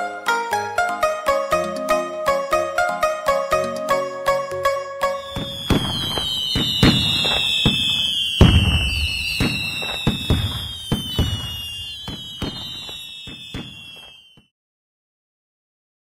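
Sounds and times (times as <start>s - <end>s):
fireworks whistles: 5.1s - 14.5s
fireworks bangs and crackles: 5.2s - 14.5s.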